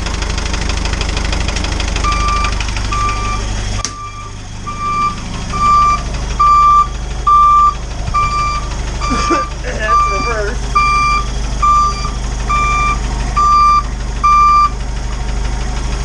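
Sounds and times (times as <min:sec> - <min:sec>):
diesel engine idling: 0:00.0 - 0:16.0
electronic beeper beeping: 0:02.0 - 0:14.7.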